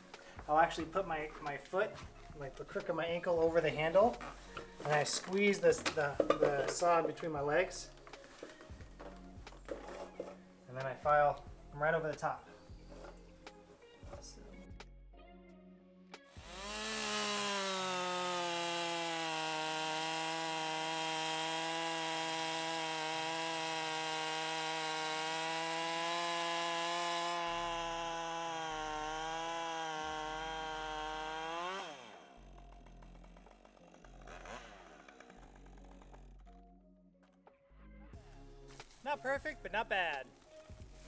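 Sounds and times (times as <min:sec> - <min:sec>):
chainsaw cutting through log: 0:00.0 - 0:10.4, 0:16.3 - 0:36.6.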